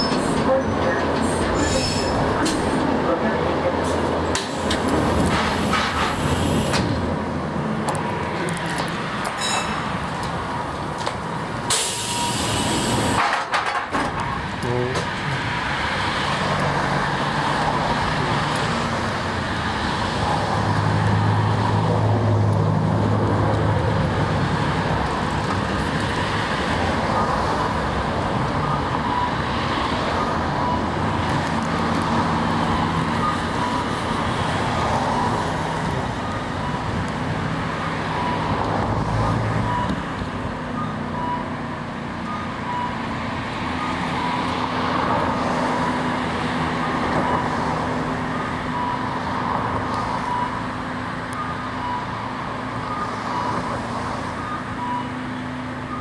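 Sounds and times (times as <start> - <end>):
electric tram on track: 0.0 - 56.0.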